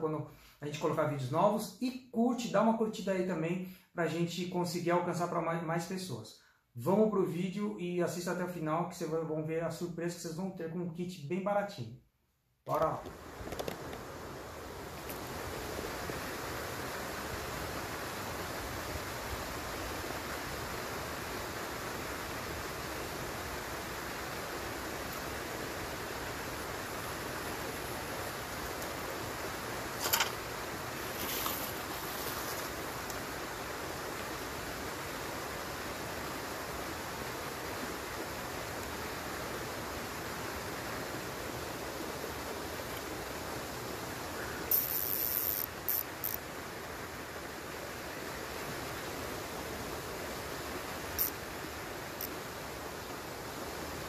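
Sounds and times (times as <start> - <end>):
outdoor background hiss: 0.0 - 54.0
short high hiss: 29.9 - 33.4, 44.3 - 46.5, 51.0 - 52.4
short high-pitched zips: 44.7 - 46.4, 51.2 - 51.4.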